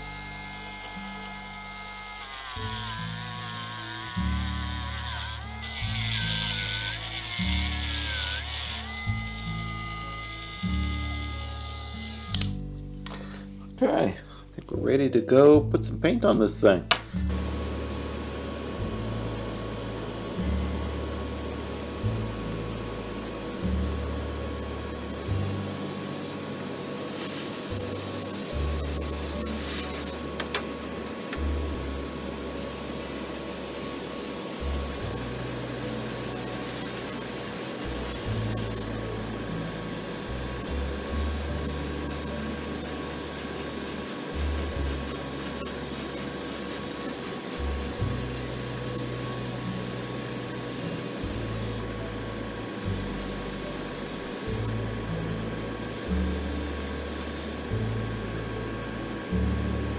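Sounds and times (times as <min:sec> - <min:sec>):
airbrush spraying hiss: 0:24.5 - 0:31.4, 0:32.4 - 0:38.8, 0:39.6 - 0:51.8, 0:52.7 - 0:54.8, 0:55.8 - 0:57.6.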